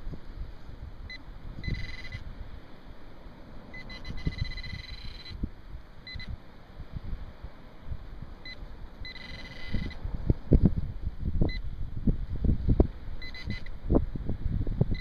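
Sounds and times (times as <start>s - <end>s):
wind rumbling on microphone: 0.0s - 15.0s
metal detector pinpointer beeping: 1.1s - 2.2s, 3.7s - 5.4s, 6.0s - 6.4s, 8.4s - 10.0s, 13.2s - 13.7s.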